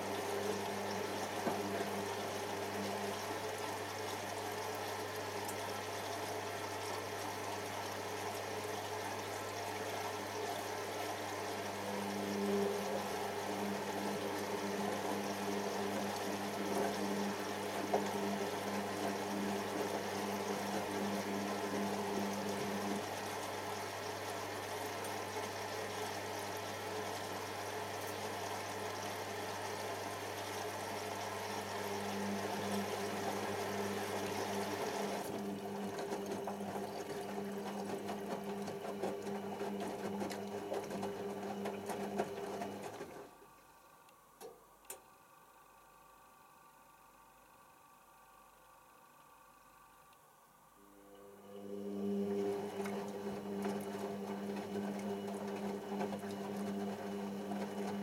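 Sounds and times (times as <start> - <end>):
water sloshing in drum: 0.0 - 6.4, 31.3 - 43.4
washing machine motor hum: 0.0 - 58.0.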